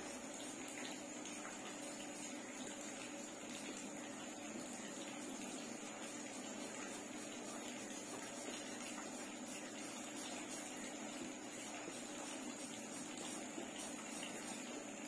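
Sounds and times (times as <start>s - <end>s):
pencil scratching on paper: 5.3s - 10.8s, 11.6s - 14.7s.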